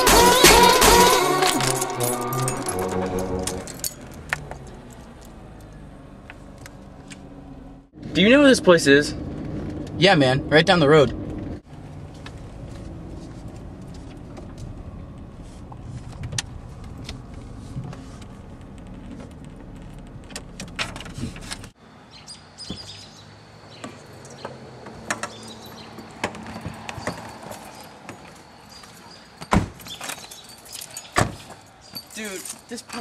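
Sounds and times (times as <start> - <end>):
car road and engine rumble: 0.0 - 33.0
car doors clicking and knocking: 29.4 - 30.0.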